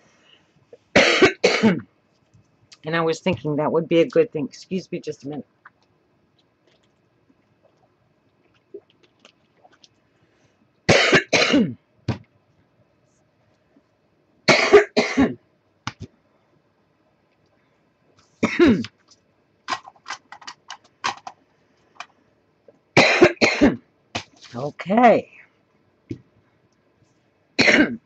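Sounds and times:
woman coughing: 0:01.0 - 0:01.9, 0:10.9 - 0:11.8, 0:14.5 - 0:15.4, 0:18.4 - 0:18.9, 0:23.0 - 0:23.8, 0:27.6 - 0:28.0.

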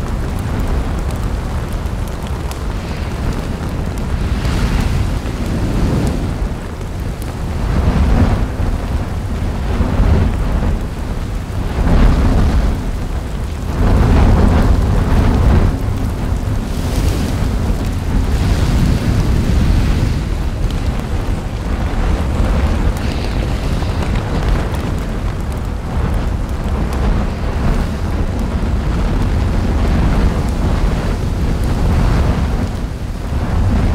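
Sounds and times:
volcano rumbling: 0:00.0 - 0:33.9
rushing hiss: 0:16.5 - 0:25.8.

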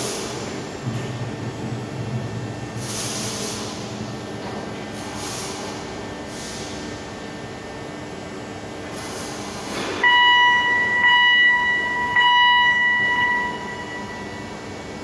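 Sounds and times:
factory hall background: 0:00.0 - 0:15.0
electronic warning tone: 0:10.0 - 0:15.0.

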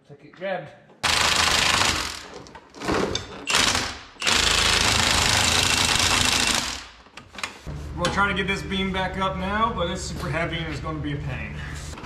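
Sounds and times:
impact wrench hammering bolts: 0:01.0 - 0:07.6.

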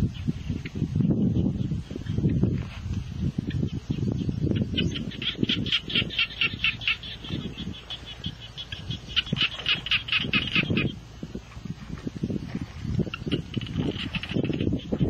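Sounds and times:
bird squawking: 0:04.5 - 0:11.0
rustling in grass: 0:07.0 - 0:14.8.

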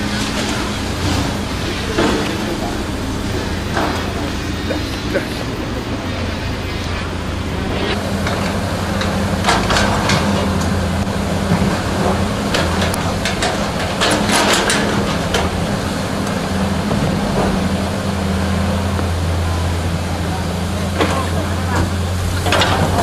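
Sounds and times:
heavy diesel engines running: 0:00.0 - 0:23.0
sharp metal clanks and rattles: 0:12.0 - 0:15.7.

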